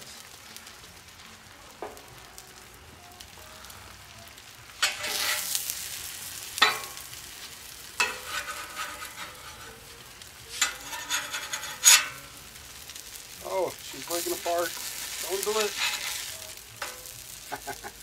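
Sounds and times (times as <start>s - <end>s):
eggs frying on a griddle: 0.0s - 18.0s
metal spatula scraping griddle: 4.7s - 13.3s, 13.9s - 17.8s.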